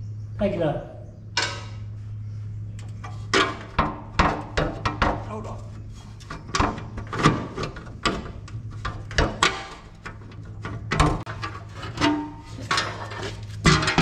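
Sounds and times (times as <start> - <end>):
steady low hum: 0.0 - 14.0
metal plate knocking and clanking: 3.3 - 5.3, 6.4 - 14.0.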